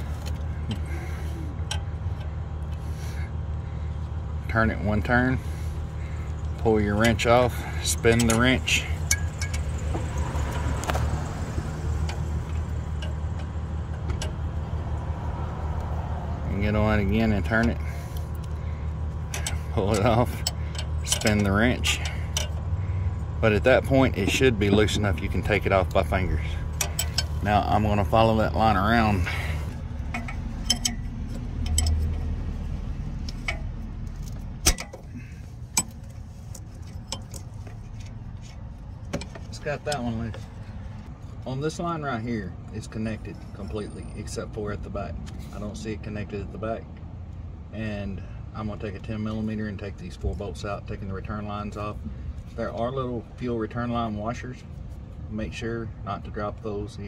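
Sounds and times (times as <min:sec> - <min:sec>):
engine idling: 0:00.0 - 0:41.4
low steady rumble: 0:00.0 - 0:57.0
wrench clicking on metal fittings: 0:19.3 - 0:22.6, 0:30.1 - 0:32.3
wrench clicking on metal: 0:30.1 - 0:32.3.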